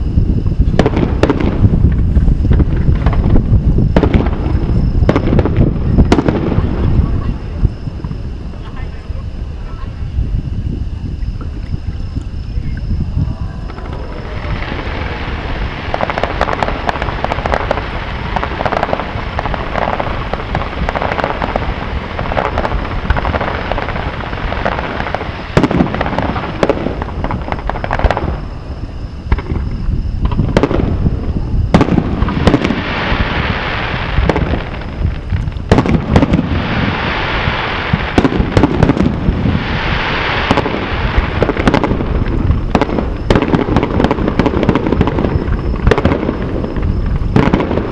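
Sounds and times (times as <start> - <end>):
fireworks crackling: 0.0 - 47.9
firework shells bursting: 13.6 - 28.5, 31.7 - 47.9.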